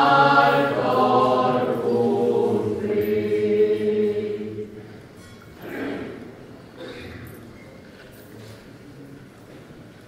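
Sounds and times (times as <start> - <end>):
church choir singing a hymn: 0.0 - 5.0.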